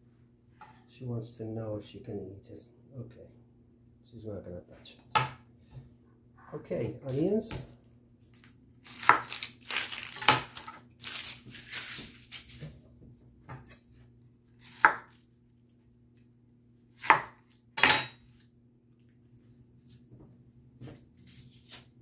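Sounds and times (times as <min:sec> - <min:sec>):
knife cutting onion on board: 0:08.8 - 0:12.8, 0:14.6 - 0:15.2, 0:17.0 - 0:18.2.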